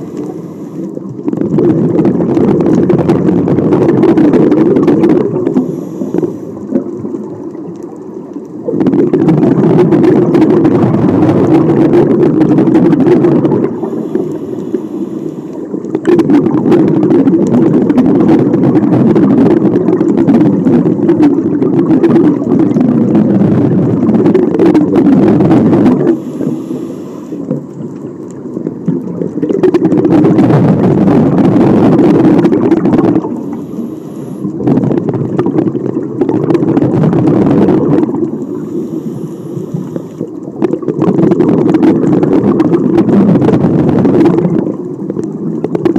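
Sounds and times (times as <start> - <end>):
diver inhaling through regulator: 0.0 - 1.0, 5.4 - 6.7, 13.6 - 15.8, 26.0 - 27.5, 33.2 - 34.7, 38.4 - 40.4
diver exhaling bubbles underwater: 0.0 - 45.9.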